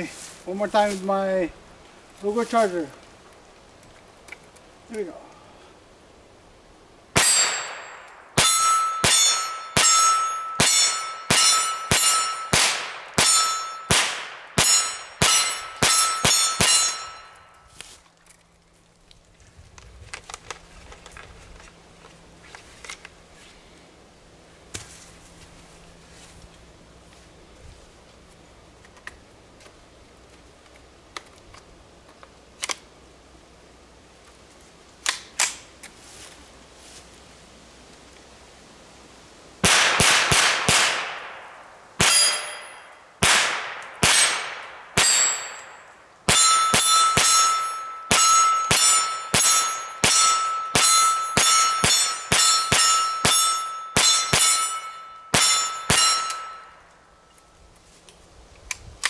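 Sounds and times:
pistol shots: 7.2s - 17.2s, 39.6s - 56.6s
metallic clang of steel target: 7.2s - 17.6s, 42.0s - 57.0s
sharp metallic clacks: 7.2s - 17.6s, 42.0s - 57.0s.

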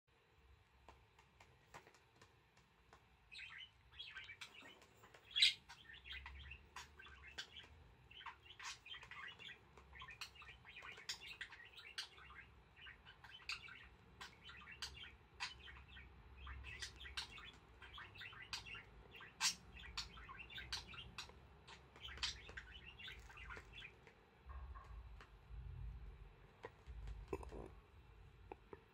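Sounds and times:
budgerigar chirps and clicks: 3.3s - 25.0s.

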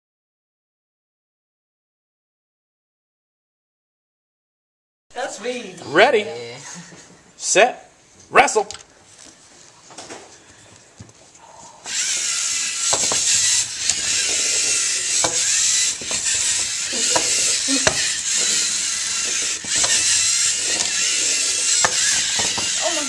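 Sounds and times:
robot motors whirring and grinding: 11.9s - 23.0s
sharp clicks and knocks: 12.7s - 22.8s.

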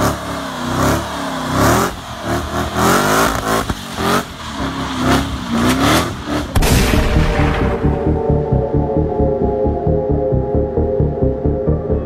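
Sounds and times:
sports car engine revving: 0.0s - 11.7s.

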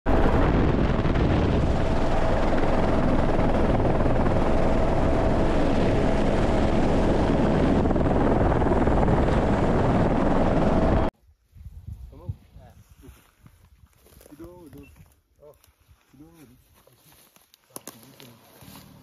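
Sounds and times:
helicopter rotor and engine: 0.1s - 11.1s.

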